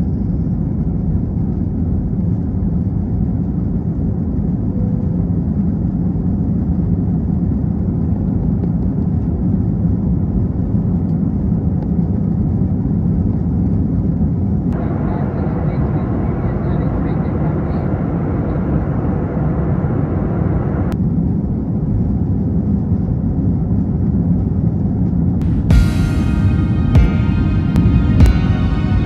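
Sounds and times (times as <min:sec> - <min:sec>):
jet engines rumbling in cabin: 0:00.0 - 0:29.0.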